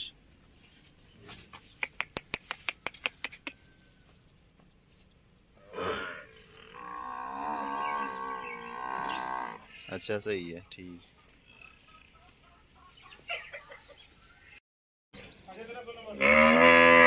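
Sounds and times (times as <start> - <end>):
sharp clicks: 1.7 - 3.6
water buffalo lowing: 5.6 - 9.7.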